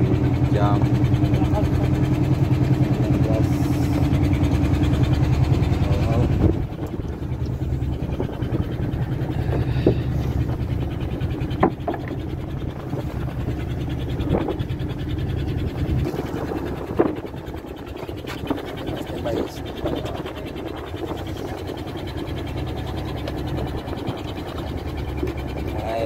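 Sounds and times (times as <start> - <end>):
boat engine rumbling: 0.0 - 26.0
water rushing along hull: 0.0 - 26.0
sharp knocks: 11.4 - 12.3.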